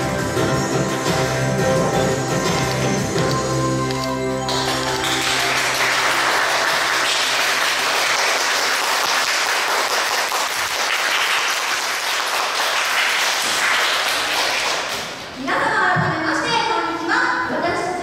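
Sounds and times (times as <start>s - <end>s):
audience applauding: 4.4s - 15.1s.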